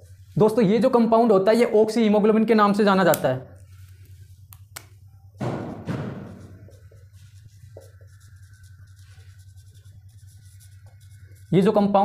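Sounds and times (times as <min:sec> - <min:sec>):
steady low hum: 0:00.0 - 0:12.0
marker squeaking on whiteboard: 0:05.9 - 0:12.0.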